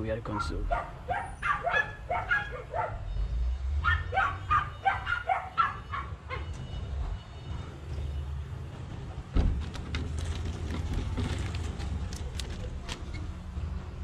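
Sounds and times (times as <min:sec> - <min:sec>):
dog barking: 0:00.3 - 0:03.1, 0:03.8 - 0:06.5.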